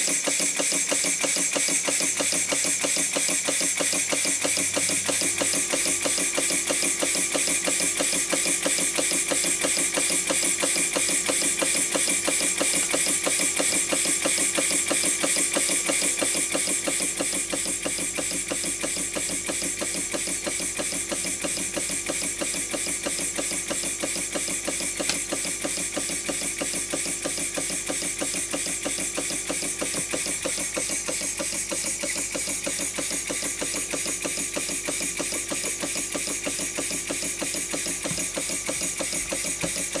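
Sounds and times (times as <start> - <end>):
model steam engine chuffing: 0.0 - 40.0.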